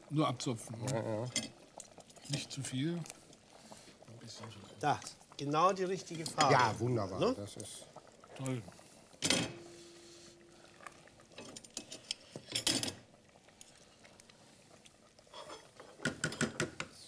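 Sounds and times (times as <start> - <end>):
spoon knocking on pot: 16.0 - 16.9.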